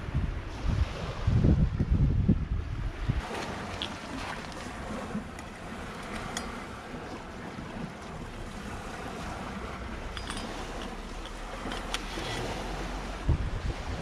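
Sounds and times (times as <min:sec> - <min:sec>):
wind rumbling on microphone: 0:00.0 - 0:14.0
waves washing on shore: 0:02.8 - 0:14.0.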